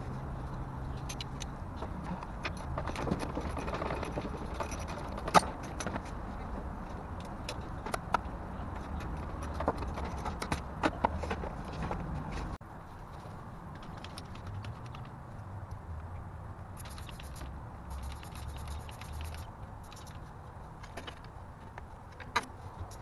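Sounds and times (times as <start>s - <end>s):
metallic clicks of hand tools: 1.0s - 1.5s.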